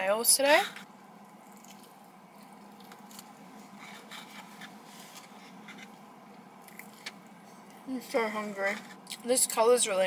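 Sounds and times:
low steady hum: 0.0 - 10.0
eating clicks and rustles: 1.2 - 5.9.

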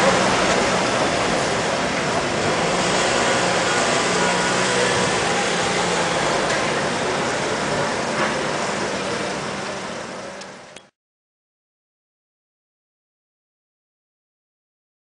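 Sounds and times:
street noise: 0.0 - 11.0.

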